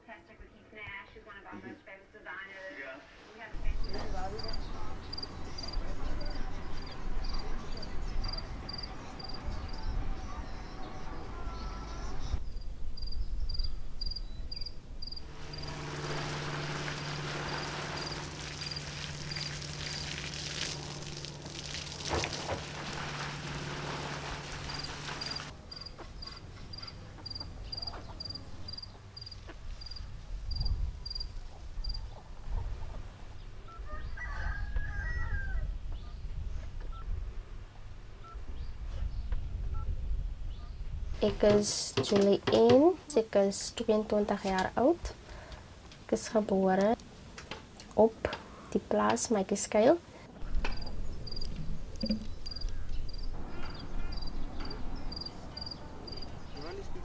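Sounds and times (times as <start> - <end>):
low hum with hiss: 0.0 - 33.8
insect chirping: 3.8 - 5.8, 8.2 - 9.4, 12.4 - 15.8, 17.4 - 20.4, 24.6 - 32.0, 50.7 - 56.7.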